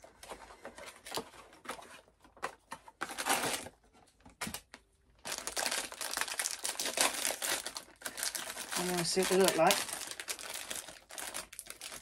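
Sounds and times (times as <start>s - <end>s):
foil wrapper crinkling: 3.0s - 3.8s, 5.2s - 12.0s.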